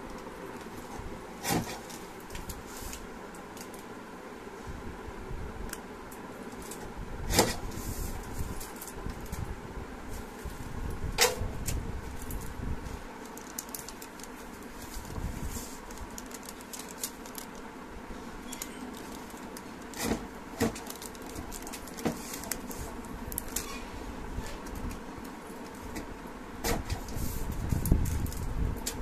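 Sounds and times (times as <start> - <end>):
plastic sheet crinkling: 11.7 - 23.9.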